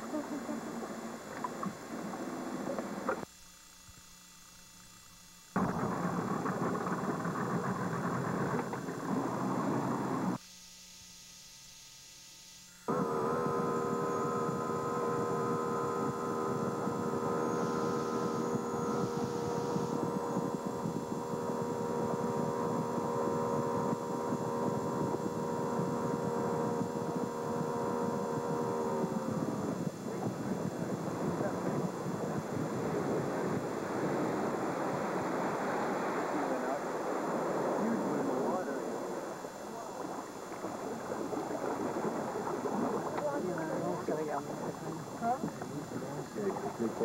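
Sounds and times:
engine running steadily: 0.0 - 3.3, 5.5 - 10.4, 12.8 - 47.0
faint electrical hum: 0.0 - 47.0
wind on microphone: 5.6 - 10.4, 12.9 - 47.0.

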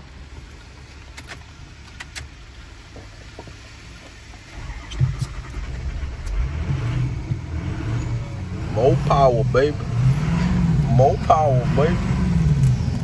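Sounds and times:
truck engine cranking and idling: 0.0 - 13.0
ignition clicks: 0.9 - 3.1, 4.5 - 8.1, 12.4 - 13.0.

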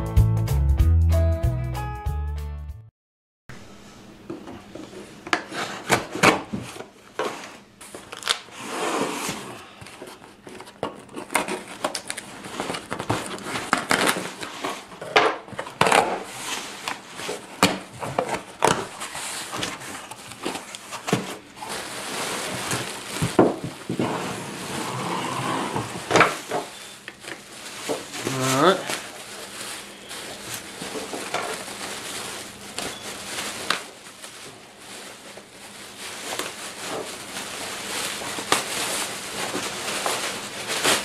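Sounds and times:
plastic packaging rustling: 4.7 - 41.0
cardboard flaps scraping: 4.8 - 33.9
packing tape tearing: 7.8 - 41.0.

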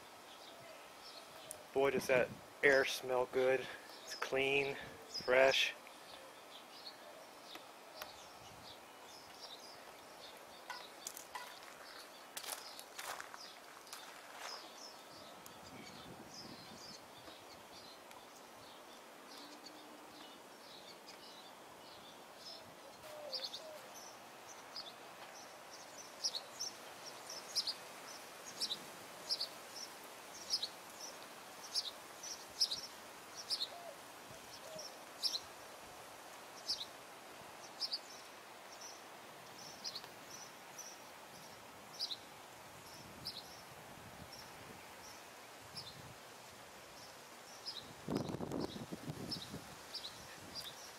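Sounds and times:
faint background noise: 0.0 - 50.9
bird chirping: 3.7 - 35.5, 39.6 - 42.3.

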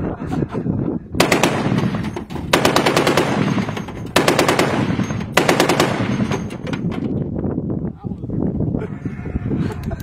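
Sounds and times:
heavy machine gun bursts: 1.2 - 6.9
rolling echo of gunfire: 1.2 - 6.9.

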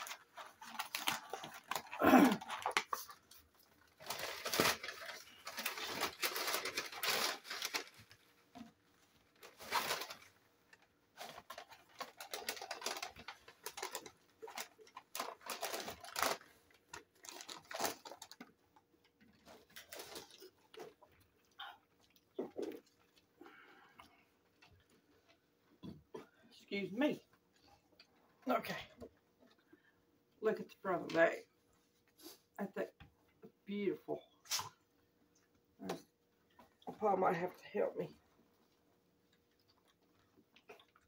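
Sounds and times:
paper wrappers rustling: 0.0 - 21.5.

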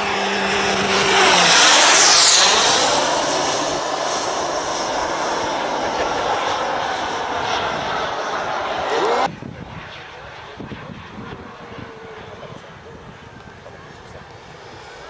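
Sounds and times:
model aircraft engine whine: 0.0 - 15.0.

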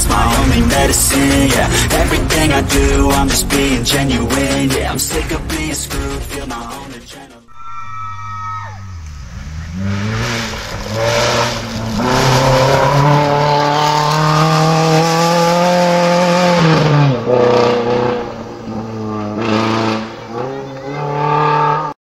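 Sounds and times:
rally car engine revving: 0.0 - 6.7, 8.8 - 22.0
tyres on gravel: 8.8 - 13.5.

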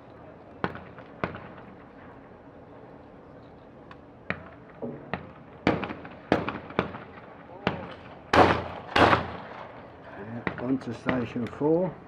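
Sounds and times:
shotgun shots: 7.7 - 9.7.

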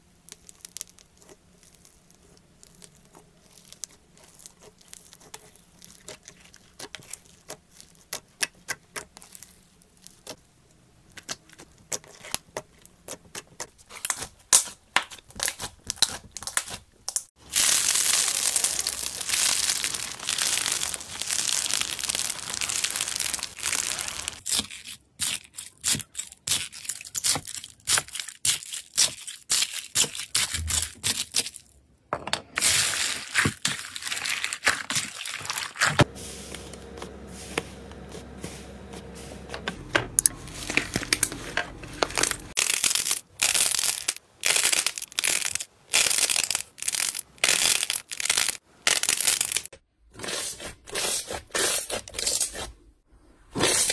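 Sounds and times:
dense crinkly crackling: 0.0 - 8.1, 17.4 - 24.4, 33.0 - 49.7
slime crackling and popping: 0.2 - 10.4, 11.1 - 31.5, 40.2 - 49.7.

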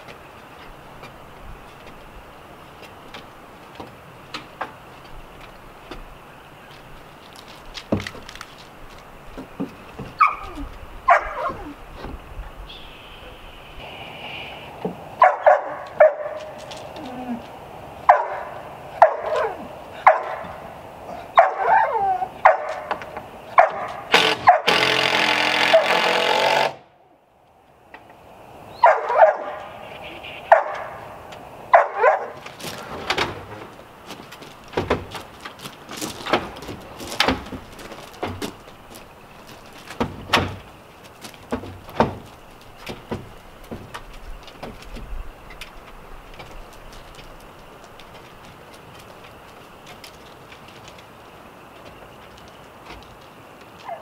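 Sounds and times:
dog barking: 10.2 - 11.8, 15.2 - 16.6, 18.1 - 24.8, 25.7 - 26.0, 28.8 - 29.7, 30.5 - 31.1, 31.7 - 32.4
loud burst of noise: 24.1 - 26.9
sharp knocks: 39.9 - 40.7, 41.4 - 45.1.

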